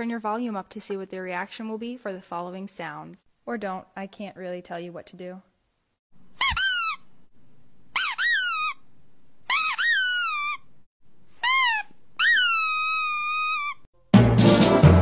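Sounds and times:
man squeaking with lips: 6.4 - 7.0, 8.0 - 8.8, 9.5 - 10.7, 11.3 - 13.9
music: 14.0 - 15.0.

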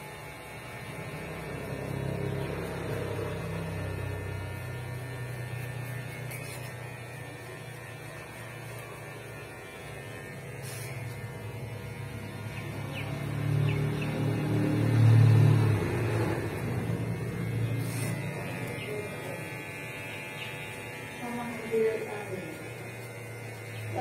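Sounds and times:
passing vehicle engine rumble: 11.9 - 19.2.

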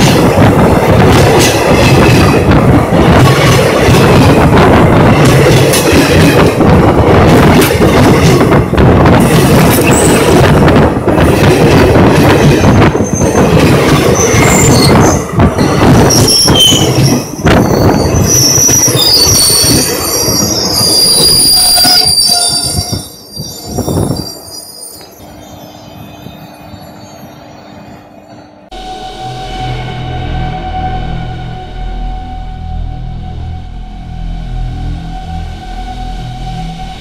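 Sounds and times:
steel wheels clattering on rails: 0.0 - 25.2
train coaches rumbling: 0.0 - 37.0
high wheel squeal: 16.1 - 37.0
low hum: 28.7 - 37.0.

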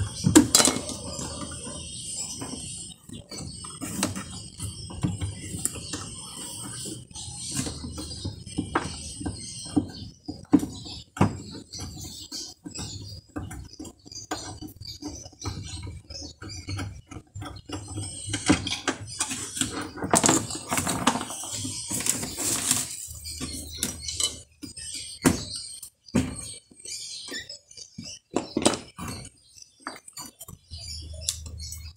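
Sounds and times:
metal parts rattling and scraping: 0.0 - 1.6, 18.2 - 24.5
tools clicking and knocking on metal: 0.2 - 1.5.

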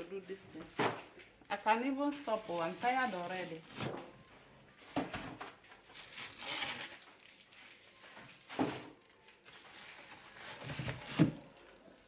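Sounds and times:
plastic bag rustling: 2.1 - 12.0.

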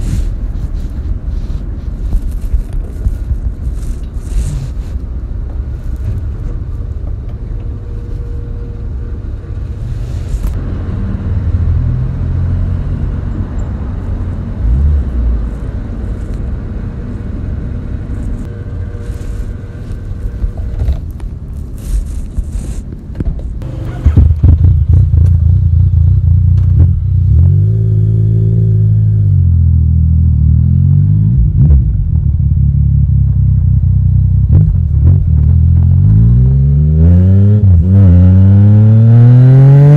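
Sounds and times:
motorcycle engine revving: 23.6 - 39.9.

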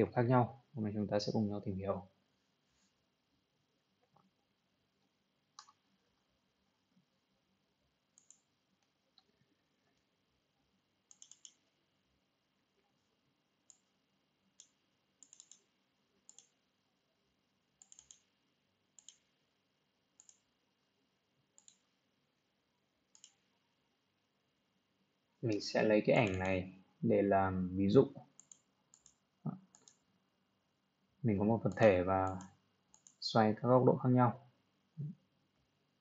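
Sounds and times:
computer mouse clicks: 5.6 - 5.9, 8.2 - 9.4, 11.1 - 11.7, 13.7 - 13.9, 14.6 - 16.6, 17.8 - 18.4, 19.0 - 19.3, 20.2 - 20.5, 21.6 - 21.9, 23.1 - 23.5, 26.2 - 26.5, 28.3 - 30.1, 31.7 - 33.2.

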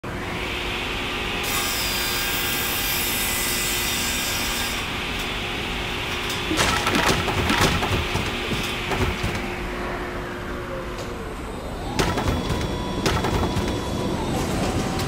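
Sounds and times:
machine hum: 5.4 - 15.0.

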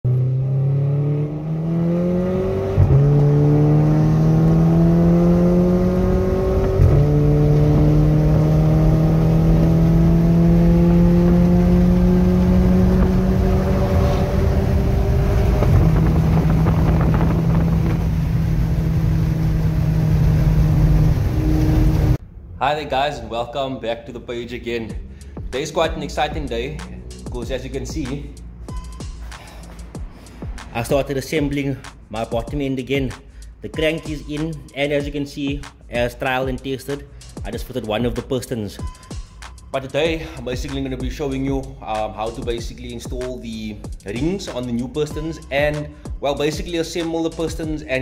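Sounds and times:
car engine accelerating hard: 0.1 - 22.2.

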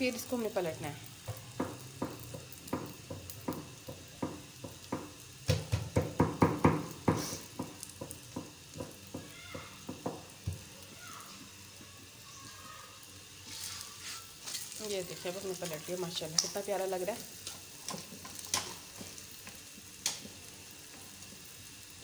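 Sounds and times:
flatbread sizzling in fat: 0.0 - 22.0.

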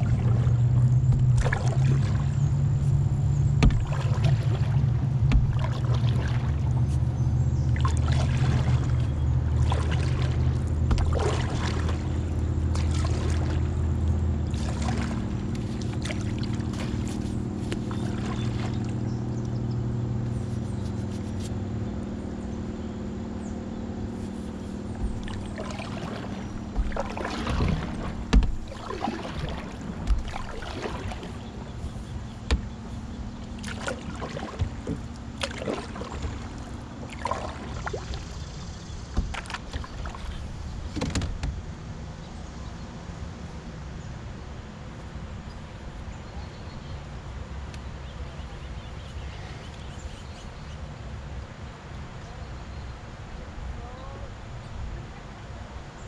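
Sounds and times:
paddle splashing in river water: 0.0 - 54.1
low steady hum: 0.0 - 56.0.

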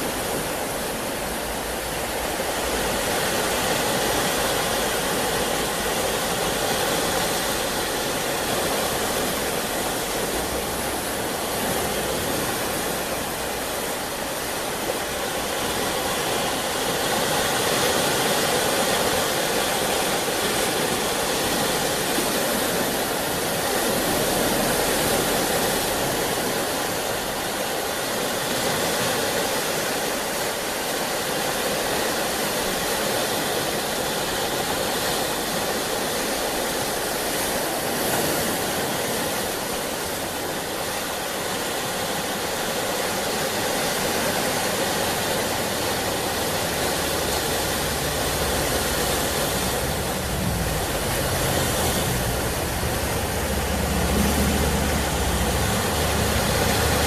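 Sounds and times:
ocean waves washing: 0.0 - 57.0.

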